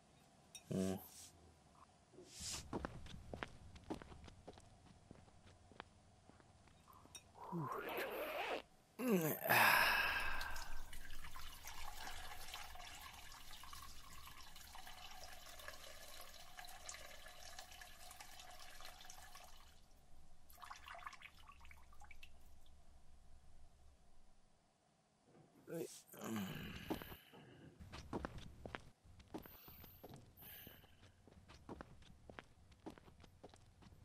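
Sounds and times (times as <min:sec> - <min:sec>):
person sighing: 0:00.7 - 0:01.2, 0:07.4 - 0:10.9, 0:25.7 - 0:27.8
liquid trickling into urinal: 0:10.0 - 0:22.8.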